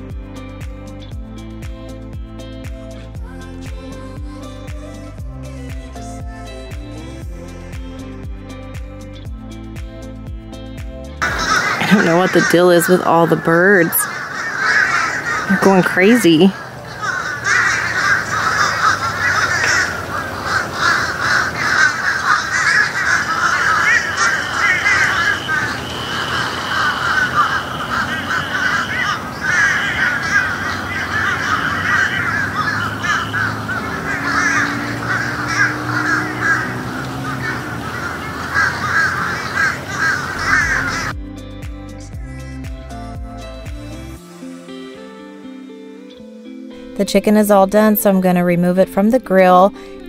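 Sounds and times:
flock of birds chattering: 0:11.2 - 0:41.1.

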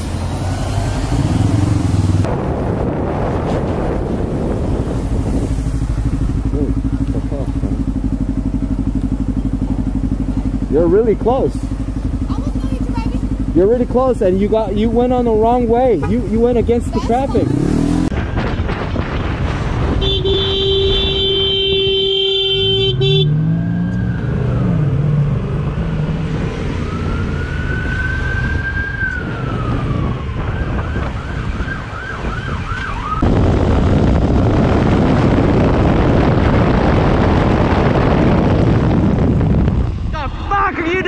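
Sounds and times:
motorcycle engine revving: 0:00.0 - 0:32.1
motorcycle riding at speed: 0:00.0 - 0:41.0
horn sounding: 0:15.8 - 0:17.8, 0:19.9 - 0:23.6
siren wailing and yelping: 0:26.7 - 0:33.2.

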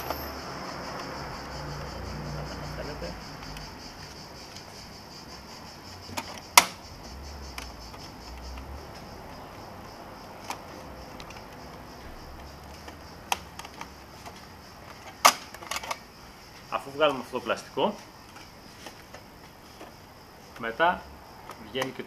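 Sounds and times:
sharp plastic clicks: 0:06.0 - 0:09.1, 0:09.9 - 0:16.1, 0:21.4 - 0:22.0.

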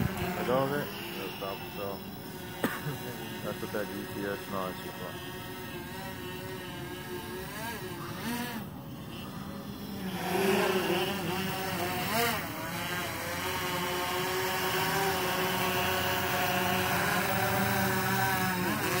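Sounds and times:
drone propellers humming: 0:00.0 - 0:19.0.

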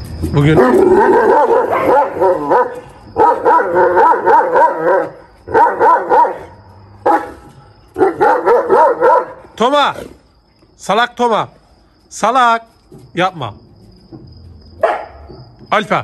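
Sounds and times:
dogs barking and yelping: 0:00.4 - 0:09.6, 0:14.8 - 0:15.5.

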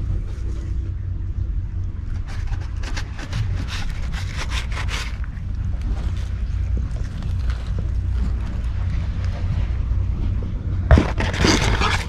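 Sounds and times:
low wind rumble on microphone: 0:00.0 - 0:12.0
cat rubbing against camera: 0:02.1 - 0:05.4, 0:10.9 - 0:12.0.

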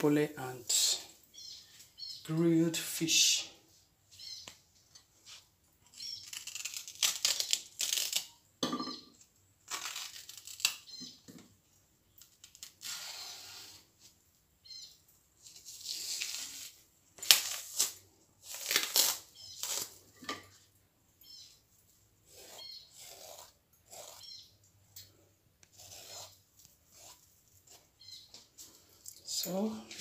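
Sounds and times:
plantain skin tearing: 0:06.0 - 0:08.4, 0:09.6 - 0:11.0, 0:15.6 - 0:20.0.

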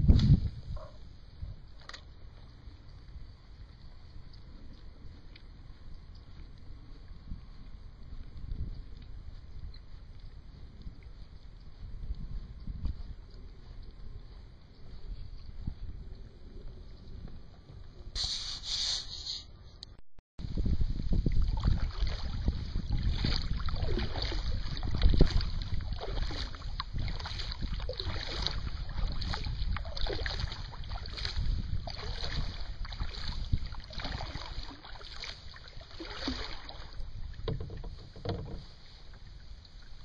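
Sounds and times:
wind rumbling on microphone: 0:00.0 - 0:18.6, 0:19.5 - 0:40.0
paddle strokes: 0:13.0 - 0:19.6, 0:21.3 - 0:40.0
water slapping kayak hull: 0:21.1 - 0:40.0
water gurgles: 0:21.2 - 0:38.7.

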